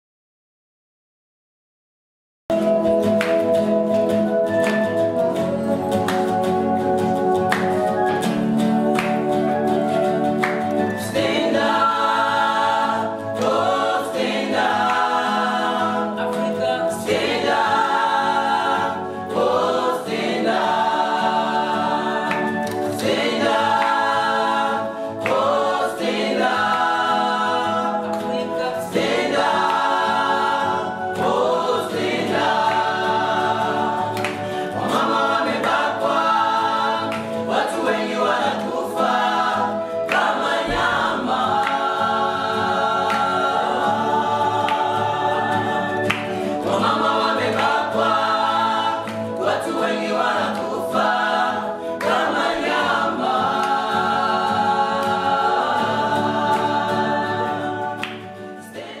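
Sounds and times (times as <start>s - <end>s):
small choir singing in harmony: 2.6s - 59.0s.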